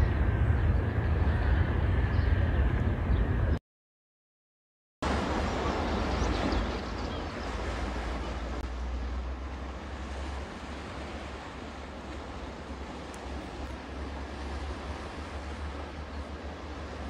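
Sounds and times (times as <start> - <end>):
wind buffeting microphone: 0.0 - 3.6.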